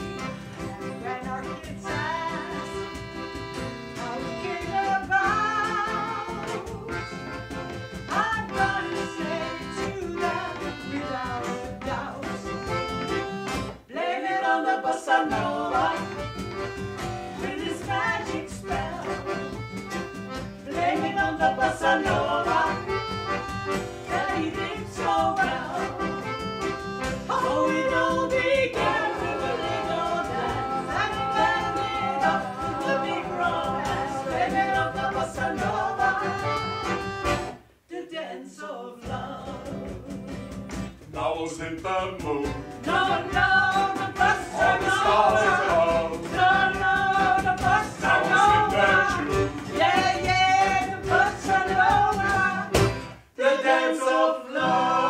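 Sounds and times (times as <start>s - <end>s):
cajon drumming: 0.0s - 13.9s, 15.2s - 37.6s, 39.1s - 53.3s
accordion: 0.0s - 37.9s, 39.0s - 55.0s
acoustic guitar: 0.0s - 38.3s, 38.9s - 55.0s
voices singing: 0.0s - 40.4s, 41.1s - 55.0s
double bass: 15.3s - 37.6s.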